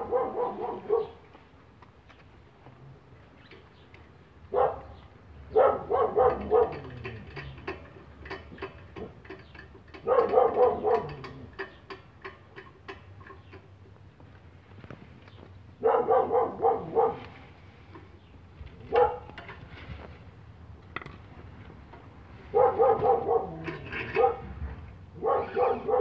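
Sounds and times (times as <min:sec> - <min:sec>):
dog barking: 0:00.0 - 0:01.2, 0:04.5 - 0:06.9, 0:10.0 - 0:11.2, 0:15.8 - 0:17.3, 0:18.9 - 0:19.3, 0:22.5 - 0:24.5, 0:25.2 - 0:26.0.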